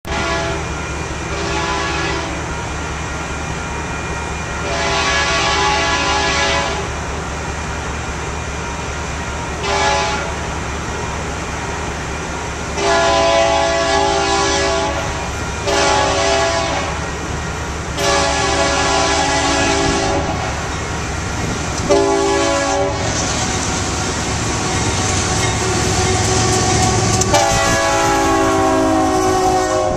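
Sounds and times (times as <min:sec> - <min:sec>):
low rumble of train: 0:00.0 - 0:29.9
locomotive air horn blasts: 0:00.1 - 0:02.5, 0:04.6 - 0:07.0, 0:09.6 - 0:10.4, 0:12.8 - 0:17.1, 0:18.0 - 0:20.6, 0:21.8 - 0:23.3, 0:24.5 - 0:29.9.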